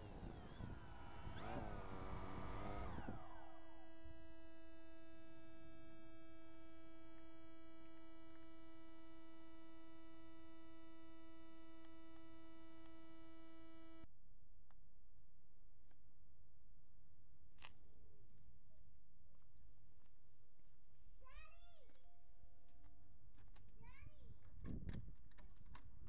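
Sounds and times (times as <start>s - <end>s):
faint electronic whine: 0.0s - 14.1s.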